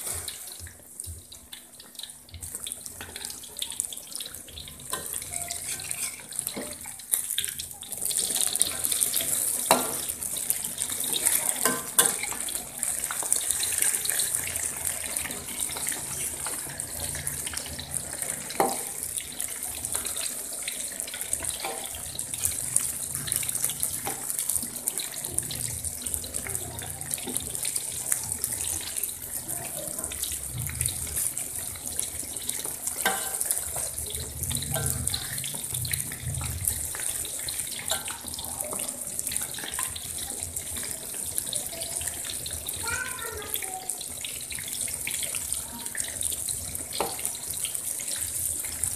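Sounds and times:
food sizzling in hot oil: 0:00.0 - 0:48.9
metal spatula scraping wok: 0:05.0 - 0:06.8.

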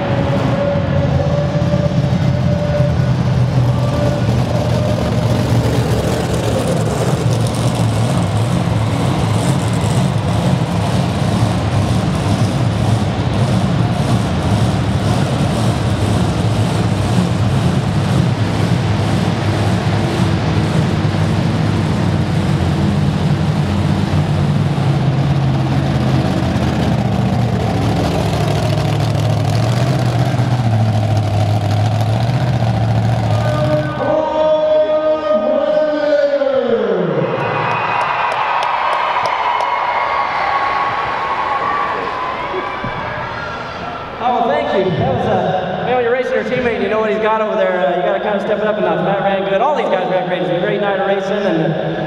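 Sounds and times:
steady whine: 0:00.0 - 0:34.6
monster truck engine revving: 0:00.0 - 0:36.0.

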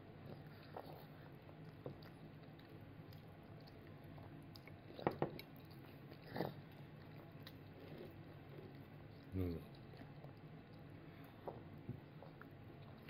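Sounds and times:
toddler chewing food: 0:00.0 - 0:13.0.

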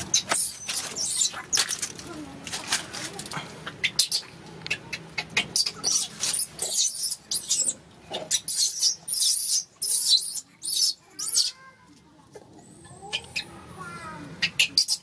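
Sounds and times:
baby monkey screaming: 0:00.0 - 0:01.7, 0:05.4 - 0:11.6, 0:14.4 - 0:15.0.

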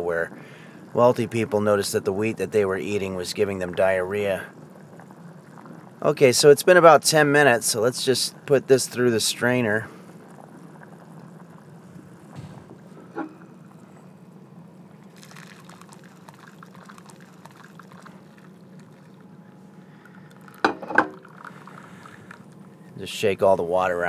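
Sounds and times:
loud clunk: 0:12.3 - 0:13.4
short knock: 0:12.4 - 0:12.8
water pouring through strainer: 0:15.1 - 0:19.1.

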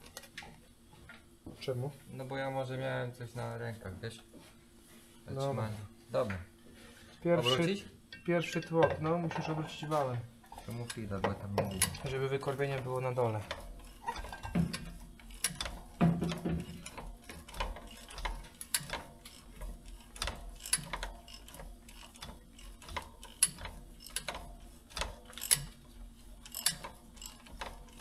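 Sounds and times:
ratchet wrench clicking: 0:13.5 - 0:25.8, 0:26.4 - 0:28.0.

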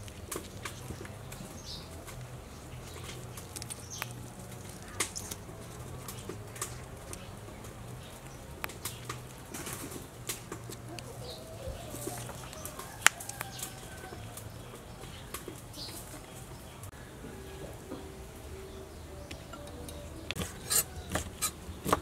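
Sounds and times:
wet clicks of cabbage leaves: 0:00.0 - 0:16.9.

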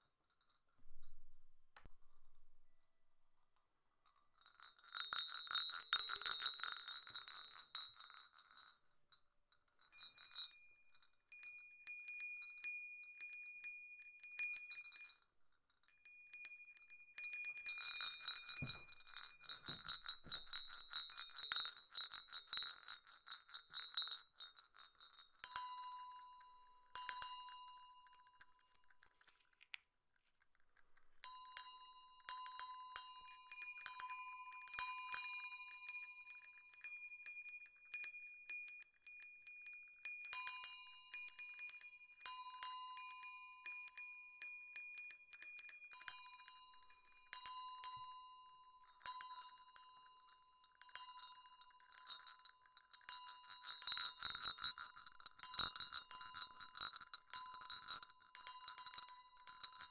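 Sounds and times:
jingle bells shaken: 0:04.6 - 0:08.8, 0:17.3 - 0:25.7, 0:50.8 - 0:59.9.

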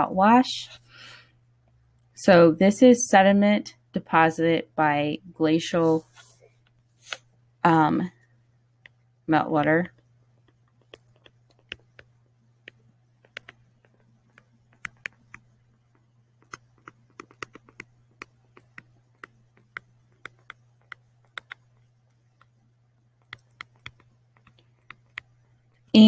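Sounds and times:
stylus tapping on tablet screen: 0:09.9 - 0:22.6, 0:23.2 - 0:25.9.

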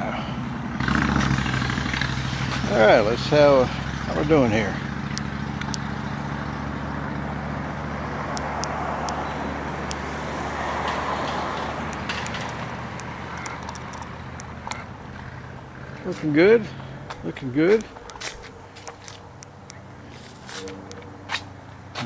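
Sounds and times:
passing traffic rush: 0:00.0 - 0:22.0
vehicle idling drone: 0:00.0 - 0:22.0
light clicks: 0:10.8 - 0:14.8.

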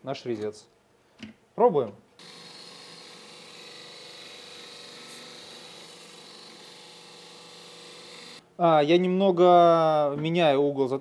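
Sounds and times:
belt grinder grinding steel: 0:02.2 - 0:08.4
motor hum: 0:02.2 - 0:08.4.

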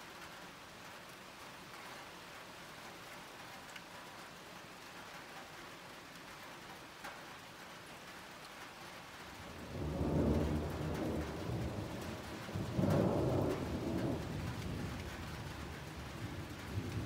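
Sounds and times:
steady rain falling: 0:00.0 - 0:17.0
thunder rumbling: 0:09.5 - 0:17.0.

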